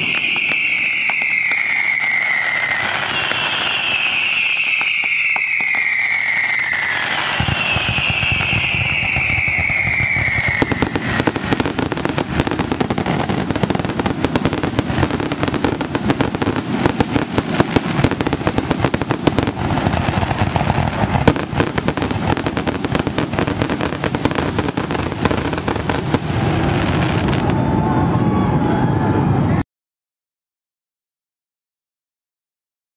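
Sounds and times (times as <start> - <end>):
firework whistle falling in pitch: 0.0 - 19.9, 21.2 - 29.6
fireworks crackling and popping: 0.0 - 27.7
firework bangs: 0.0 - 27.9.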